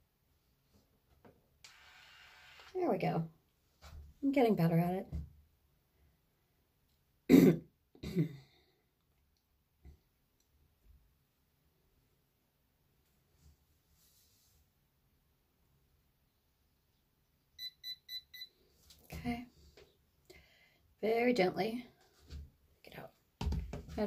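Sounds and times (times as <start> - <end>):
woman clearing her throat: 7.3 - 8.5.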